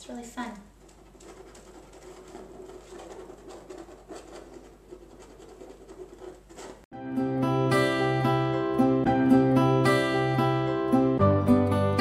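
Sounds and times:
paintbrush scratching on canvas: 0.6s - 6.9s
music: 6.9s - 12.0s.

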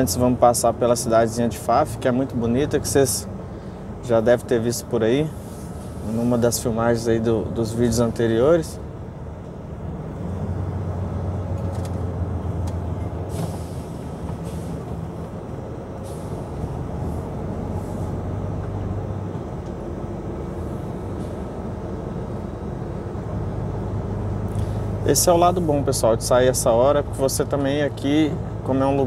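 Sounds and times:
truck engine droning: 0.0s - 29.0s
short hisses: 5.3s - 6.2s, 13.3s - 14.8s, 16.0s - 16.5s.

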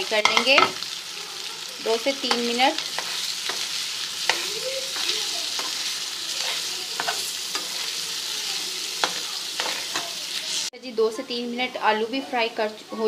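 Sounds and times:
potatoes sizzling in a frying pan: 0.0s - 13.0s
metal spoon scraping a pan: 2.0s - 10.7s.

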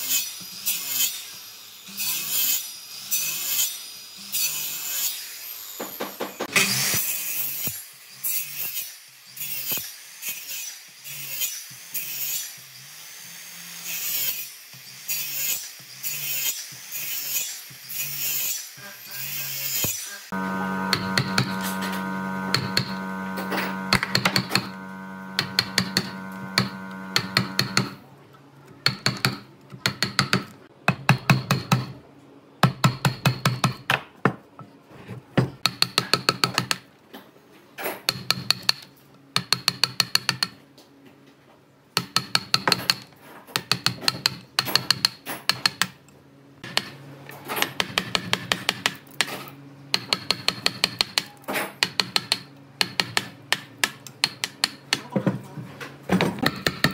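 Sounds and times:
steady hum: 20.3s - 27.8s.

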